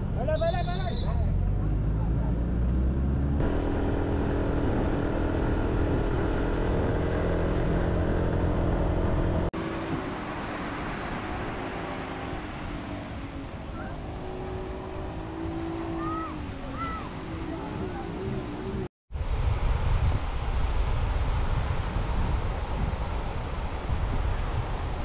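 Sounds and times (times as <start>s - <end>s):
road traffic engines: 0.0s - 18.9s.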